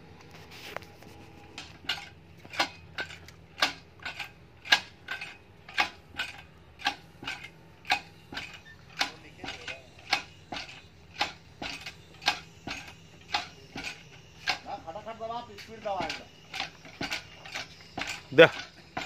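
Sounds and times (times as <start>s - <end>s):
hammer striking metal: 4.7s - 19.0s.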